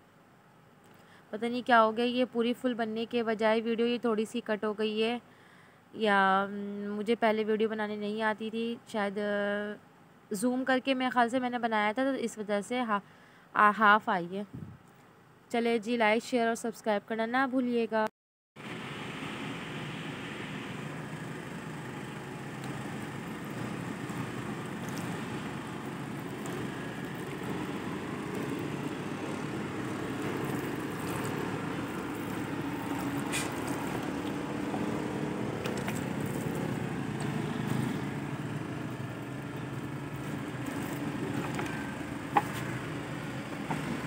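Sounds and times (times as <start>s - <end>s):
distant road traffic rumble: 18.6s - 44.0s.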